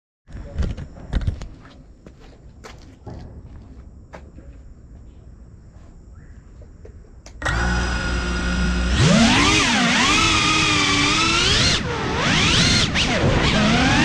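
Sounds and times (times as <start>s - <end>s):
drone motors whining: 7.3s - 14.0s.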